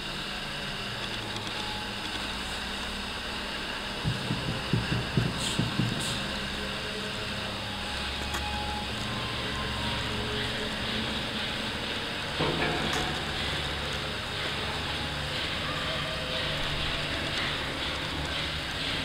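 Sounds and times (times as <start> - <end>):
steady background hum: 0.0 - 19.0
irregular low thumps: 4.0 - 6.1.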